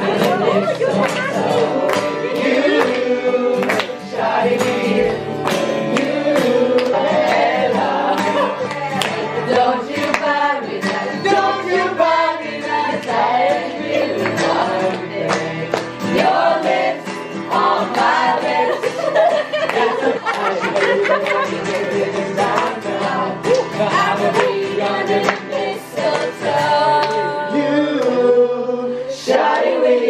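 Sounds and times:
group singing together: 0:00.0 - 0:30.0
strummed acoustic guitar: 0:00.0 - 0:30.0
hand-clapping: 0:00.1 - 0:07.4, 0:08.1 - 0:11.4, 0:12.9 - 0:13.3, 0:14.1 - 0:16.3, 0:17.6 - 0:27.4, 0:28.0 - 0:28.2.

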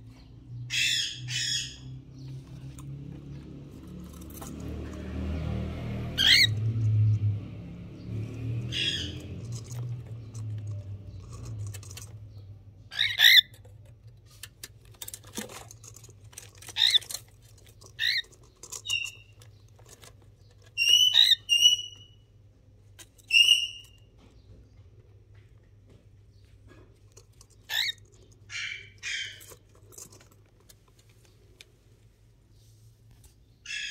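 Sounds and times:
cockatiels chirping: 0:06.2 - 0:06.6, 0:08.6 - 0:10.0, 0:12.9 - 0:13.5, 0:17.9 - 0:19.4, 0:20.7 - 0:22.2, 0:23.3 - 0:24.0, 0:27.7 - 0:29.6, 0:33.7 - 0:33.9.

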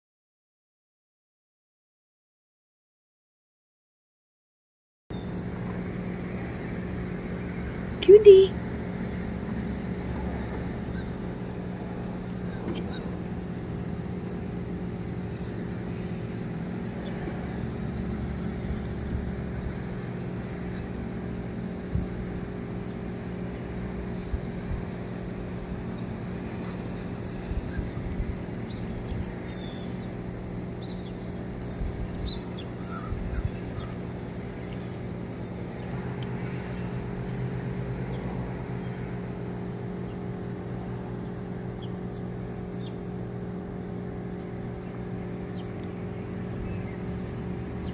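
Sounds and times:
insects droning: 0:05.1 - 0:47.9
low hum: 0:05.1 - 0:47.9.

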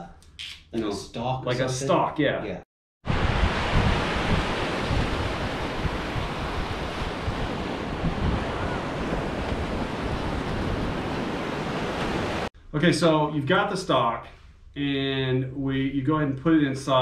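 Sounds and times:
waves breaking on a beach: 0:03.1 - 0:12.5
wind buffeting the microphone: 0:03.1 - 0:12.5.

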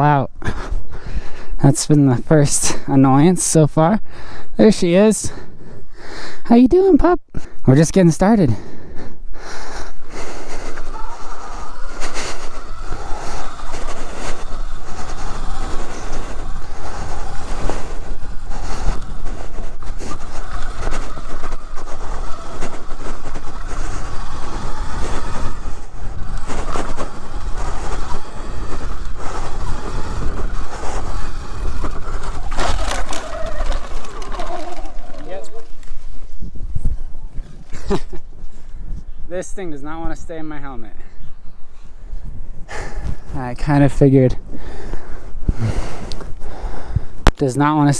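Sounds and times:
rumble and buffeting on microphone: 0:08.4 - 0:47.9
electric bike whine: 0:10.5 - 0:35.3.

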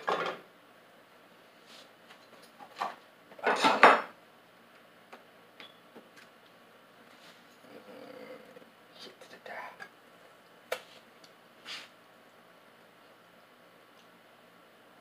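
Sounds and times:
cookware clattering on metal grate: 0:03.4 - 0:04.1.

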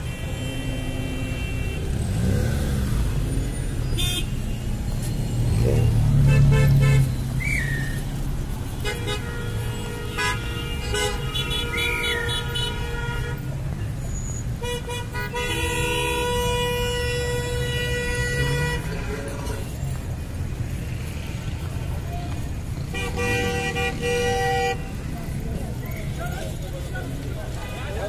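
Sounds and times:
car horns honking: 0:00.0 - 0:03.0, 0:03.8 - 0:07.8, 0:08.7 - 0:19.8, 0:22.4 - 0:25.4
traffic noise: 0:00.0 - 0:28.0
loud engine rumble: 0:01.8 - 0:08.9.

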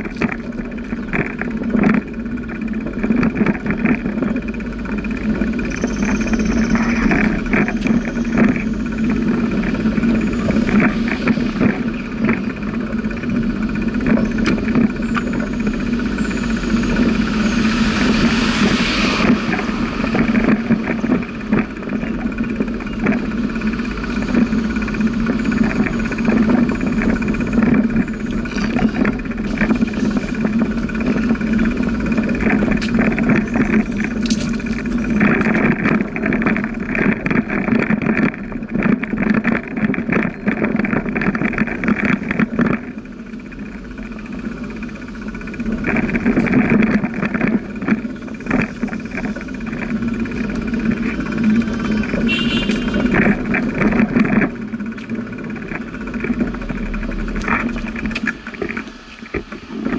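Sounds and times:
bicycle rattling clicks: 0:00.0 - 0:18.6, 0:19.3 - 0:59.9
bicycle tyres and wind rumble: 0:00.0 - 0:59.9.

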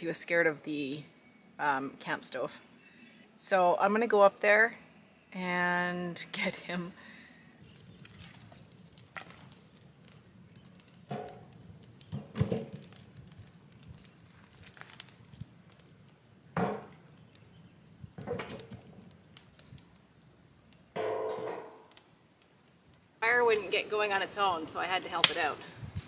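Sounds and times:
firewood knocking into metal barrel: 0:11.1 - 0:13.0, 0:16.6 - 0:17.0, 0:18.2 - 0:19.0, 0:21.0 - 0:22.0.

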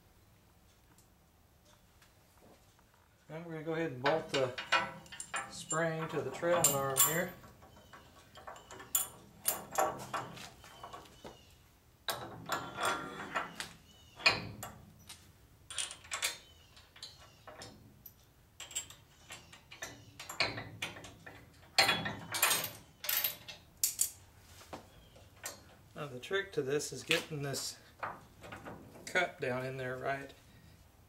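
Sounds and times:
metal tools clinking and clattering: 0:04.0 - 0:11.1.

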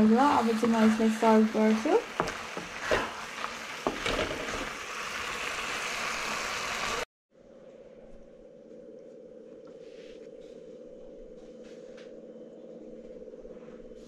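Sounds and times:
food sizzling in a wok: 0:00.0 - 0:07.1.

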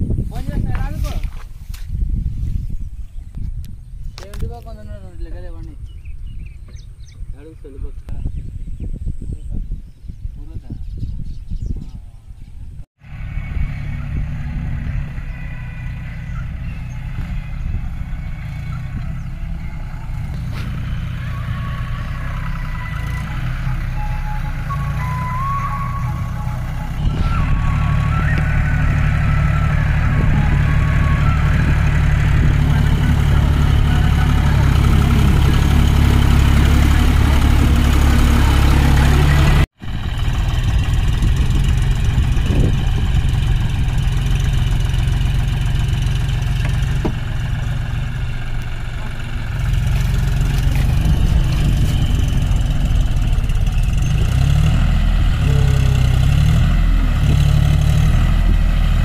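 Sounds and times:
tractor diesel engine running: 0:13.0 - 0:59.0.

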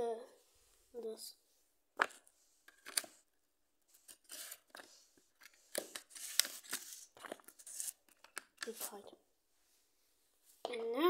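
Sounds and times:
paper rustling and crinkling: 0:03.9 - 0:09.0.

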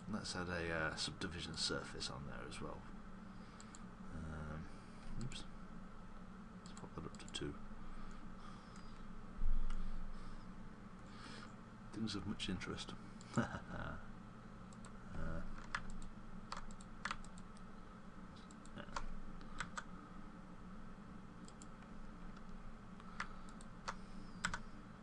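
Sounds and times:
steady low hum: 0:00.0 - 0:25.0
mouse clicks: 0:21.4 - 0:24.6
keyboard key presses: 0:24.4 - 0:24.6.

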